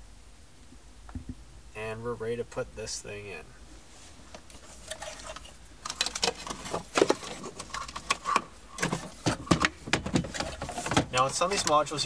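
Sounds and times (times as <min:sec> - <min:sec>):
wiring and plastic connectors rustling: 0:04.1 - 0:12.0.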